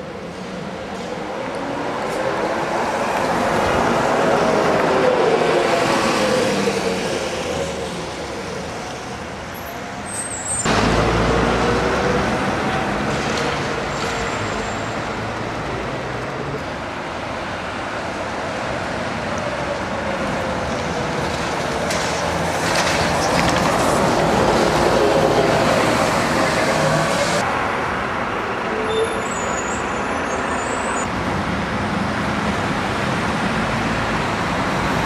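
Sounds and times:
bus passing with whine: 0.0 - 35.0
street traffic: 0.0 - 35.0
bus engine rumble: 19.4 - 29.0.

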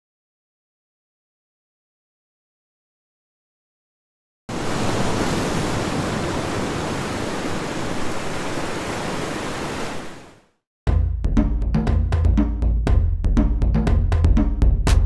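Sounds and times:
ocean surf on beach: 4.5 - 10.4.

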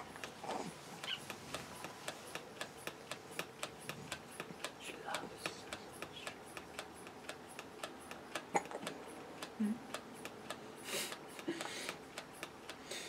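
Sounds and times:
manual pump clicking: 0.0 - 12.8.

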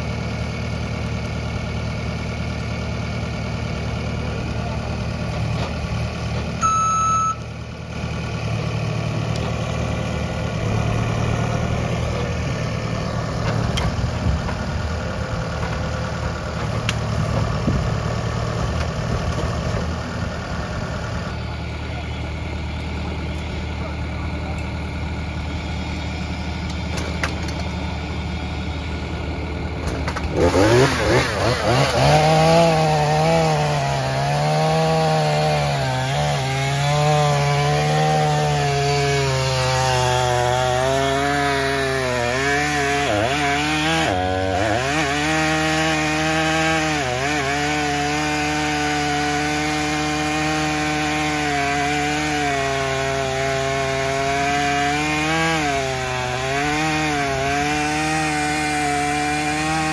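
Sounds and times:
chainsaw idling: 0.0 - 59.9
chainsaw cutting wood: 30.1 - 59.9.

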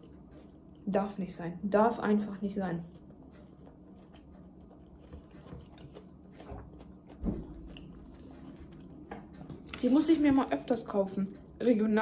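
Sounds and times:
person chewing: 0.0 - 0.8, 2.8 - 9.9.

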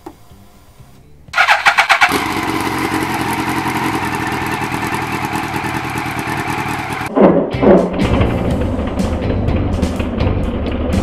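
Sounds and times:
motorcycle engine starting and idling: 1.3 - 7.1, 8.0 - 11.0.

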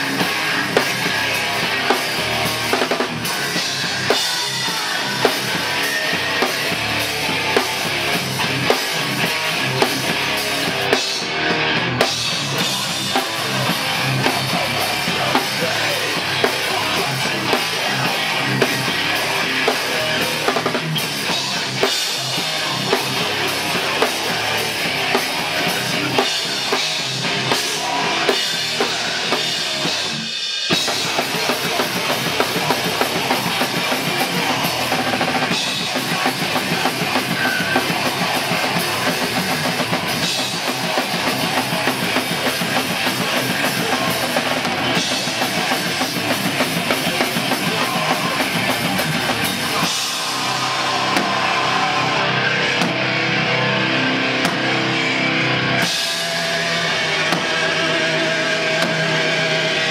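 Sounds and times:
drum kit: 0.0 - 59.9
punk band playing live: 0.0 - 59.9.

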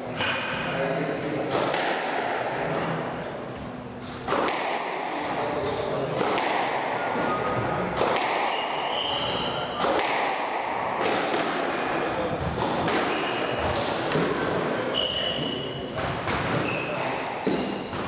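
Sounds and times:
squash ball hits: 1.5 - 2.3, 4.2 - 5.1, 6.1 - 14.6, 15.9 - 18.0
shoe squeaks: 8.5 - 9.9, 14.9 - 18.0.

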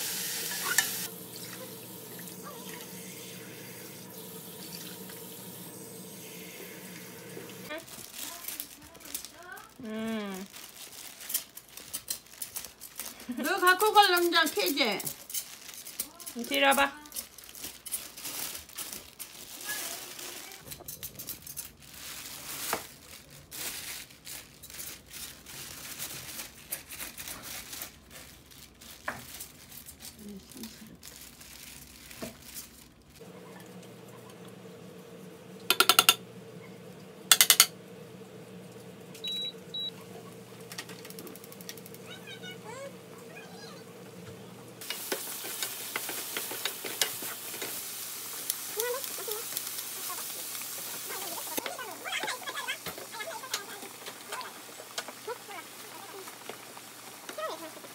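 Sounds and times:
food sizzling in frying pan: 0.0 - 8.4, 33.2 - 57.9
plastic sheet crinkling: 7.6 - 37.3, 37.9 - 57.9
spatula scraping pan: 35.6 - 37.8.

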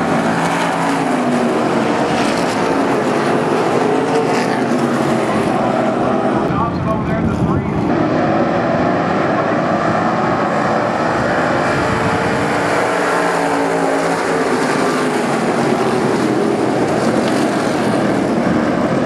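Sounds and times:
race car engines passing: 0.0 - 19.0.

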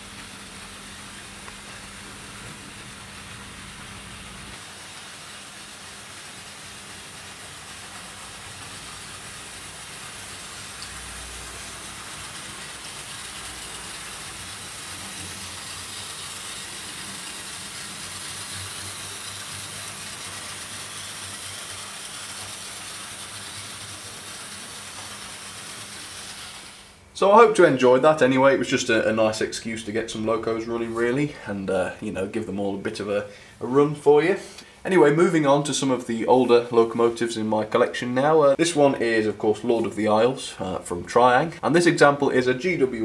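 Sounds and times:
small electric motors whirring: 0.0 - 27.0
hiss: 0.0 - 27.1.

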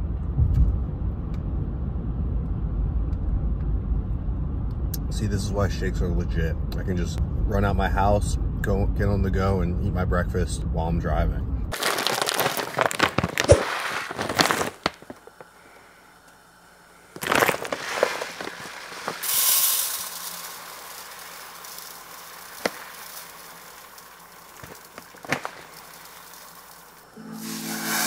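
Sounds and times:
rice pouring into bowl: 11.7 - 15.1, 17.2 - 28.0
plastic bag crinkling: 11.7 - 15.8, 17.1 - 27.2.

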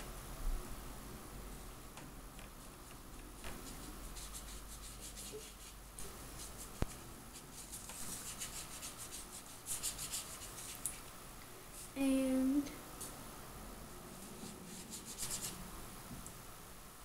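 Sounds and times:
brush scratching on paper: 2.5 - 11.0, 14.1 - 15.6.

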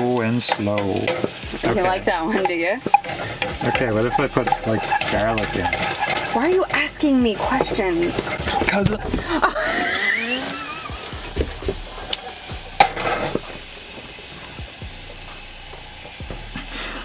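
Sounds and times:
food sizzling in a saucepan: 0.0 - 17.0
wooden spoon stirring: 0.4 - 13.6.

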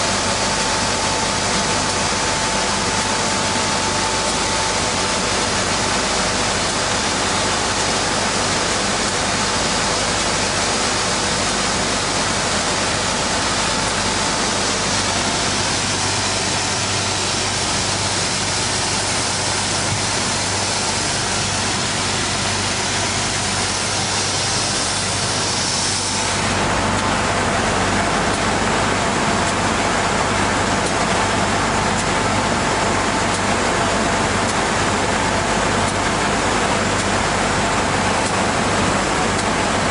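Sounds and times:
sanding machine running: 0.0 - 39.9.

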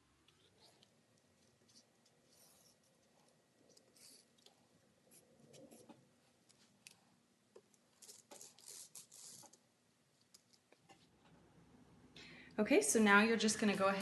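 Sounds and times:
marker scratching: 1.7 - 2.9, 3.7 - 4.3, 8.0 - 9.6.

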